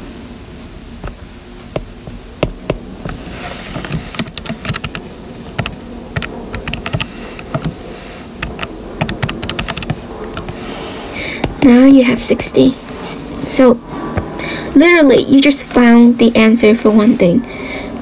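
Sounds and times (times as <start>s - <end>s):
keys clicking: 3.9s - 7.8s, 8.4s - 10.6s.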